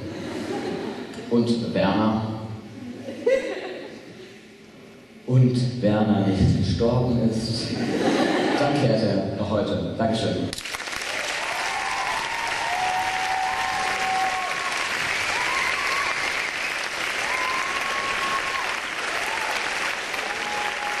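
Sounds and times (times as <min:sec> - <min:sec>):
audience applauding: 0:10.5 - 0:21.0.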